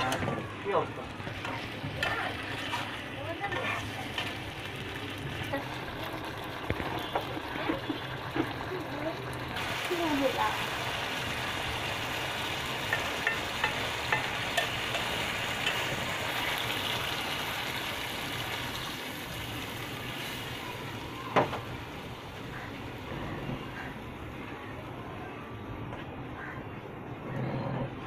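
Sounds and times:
curry sizzling in pan: 0:00.0 - 0:24.4
metal spatula tapping pan: 0:12.9 - 0:15.9.

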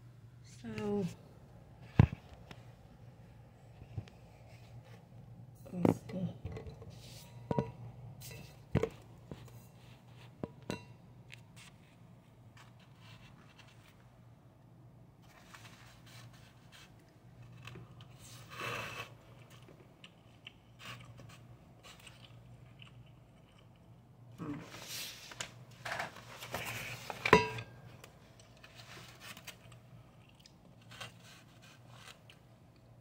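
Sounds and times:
quiet chewing: 0:16.7 - 0:24.6, 0:28.2 - 0:33.0.

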